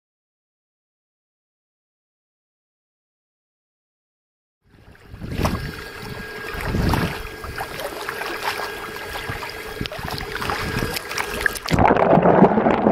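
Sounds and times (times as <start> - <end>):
steady hum: 4.7 - 12.8
wind buffeting microphone: 4.8 - 8.0, 8.7 - 12.9
water slapping against kayak hull: 4.9 - 12.9.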